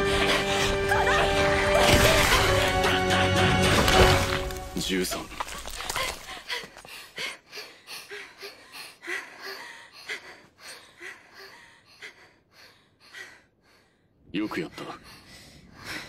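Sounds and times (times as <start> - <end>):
women panting: 5.6 - 14.2.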